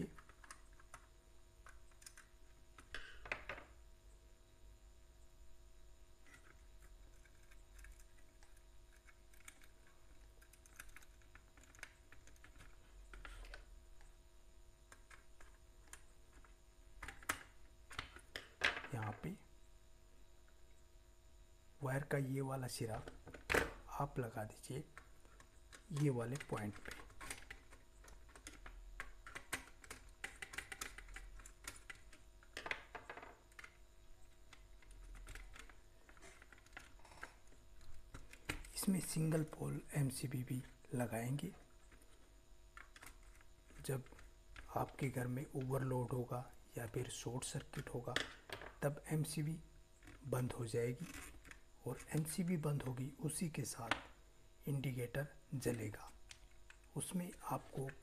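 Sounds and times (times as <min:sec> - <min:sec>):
wire clicks and rustles: 0:00.0 - 0:03.8, 0:06.2 - 0:14.2, 0:14.8 - 0:19.4, 0:22.7 - 0:54.2, 0:55.6 - 0:58.0
board and wires handled: 0:25.0 - 0:33.8, 0:34.4 - 0:39.2.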